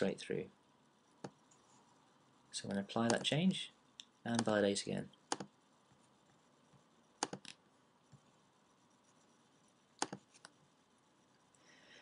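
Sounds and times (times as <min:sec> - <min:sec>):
faint steady hiss: 0:00.0 - 0:12.0
computer mouse clicks: 0:03.0 - 0:03.3, 0:04.0 - 0:04.6, 0:05.3 - 0:05.5, 0:07.2 - 0:08.2, 0:10.0 - 0:10.6.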